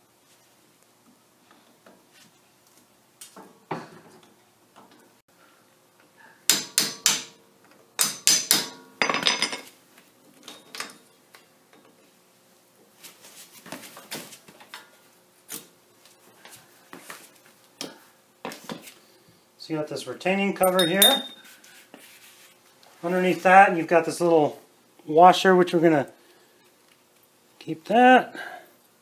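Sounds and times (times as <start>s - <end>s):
pliers clinking on metal: 20.6s - 21.4s.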